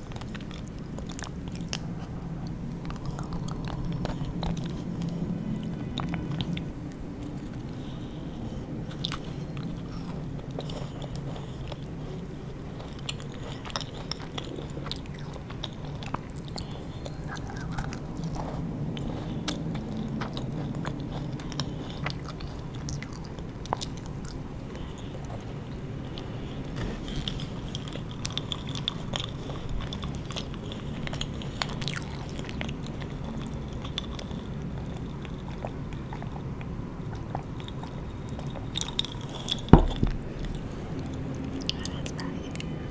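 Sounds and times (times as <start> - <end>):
macaron crunching: 8.8 - 42.0.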